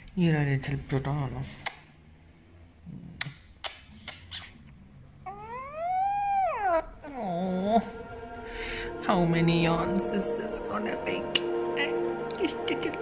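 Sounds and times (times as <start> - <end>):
puppy yawning with squeaky whine: 5.3 - 7.9.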